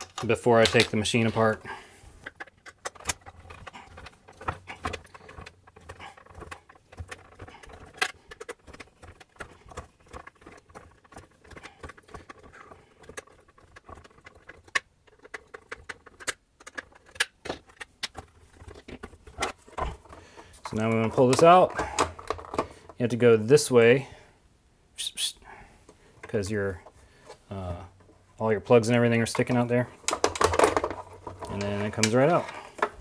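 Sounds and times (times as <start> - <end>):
screwdriver clicking and scraping: 2.2 - 22.9.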